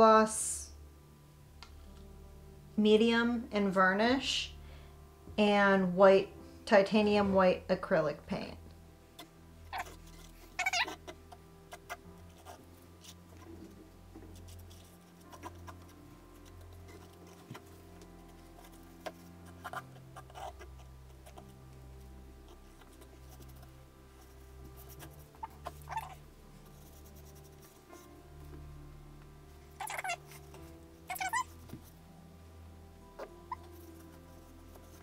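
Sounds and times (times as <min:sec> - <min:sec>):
stir stick scraping on canvas: 0:09.7 - 0:21.8, 0:22.4 - 0:28.2, 0:33.2 - 0:35.0.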